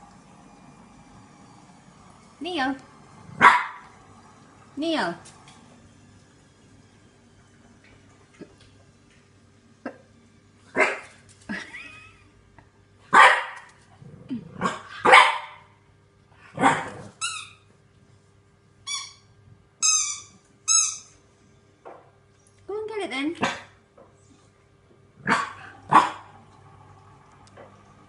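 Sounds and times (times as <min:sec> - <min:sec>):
puppy barking: 0:03.4 - 0:03.9, 0:10.8 - 0:11.1, 0:13.1 - 0:13.7, 0:14.6 - 0:15.7, 0:16.6 - 0:17.0, 0:25.2 - 0:26.3.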